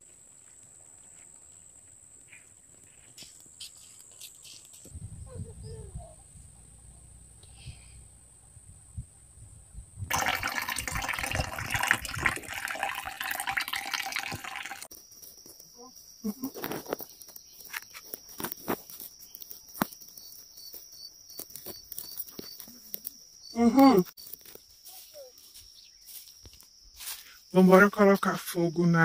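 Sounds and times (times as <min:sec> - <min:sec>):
insects chirping: 0:00.0 - 0:29.0.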